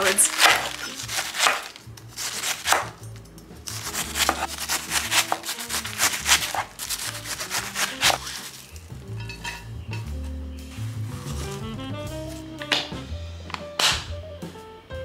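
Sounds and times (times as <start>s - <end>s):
knife slicing cabbage on wooden board: 0.0s - 3.0s, 3.7s - 8.7s
rustling of shredded cabbage: 0.0s - 3.0s, 3.7s - 8.9s, 10.7s - 12.5s
background music: 0.0s - 15.0s.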